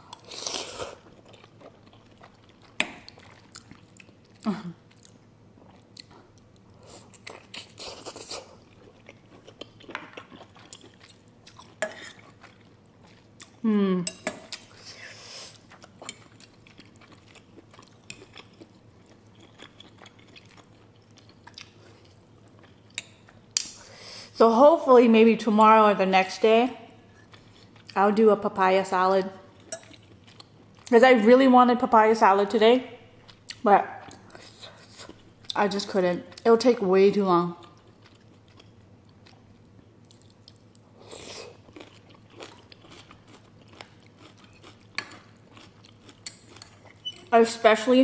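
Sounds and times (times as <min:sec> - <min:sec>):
person chewing noodle soup: 0:00.0 - 0:13.6, 0:14.2 - 0:23.8, 0:27.1 - 0:28.0, 0:29.5 - 0:30.9, 0:37.6 - 0:47.3
person humming mm: 0:04.4 - 0:04.8, 0:13.6 - 0:14.1.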